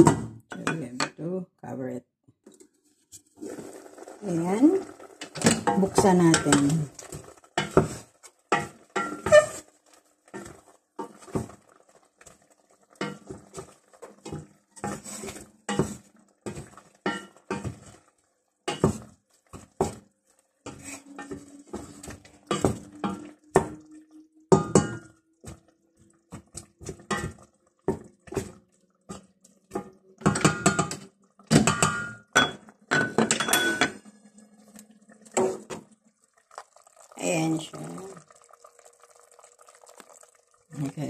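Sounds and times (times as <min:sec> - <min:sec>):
wooden spoon scraping steel pot: 0:02.5 - 0:11.6, 0:12.9 - 0:18.1, 0:18.7 - 0:25.7.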